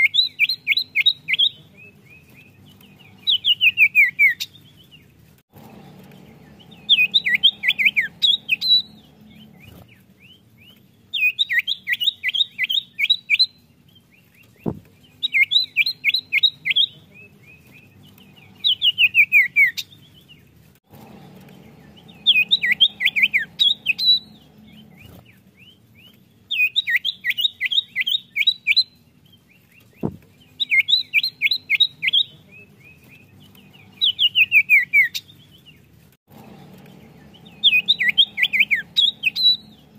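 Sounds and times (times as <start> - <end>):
bird singing whistled notes: 0.0 - 5.0, 5.9 - 20.4, 21.2 - 35.8, 36.7 - 39.9.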